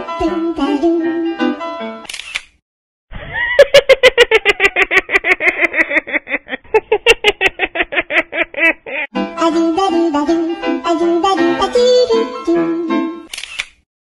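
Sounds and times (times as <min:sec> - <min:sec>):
chattering laugh-like sound effect: 0:03.1 - 0:09.1.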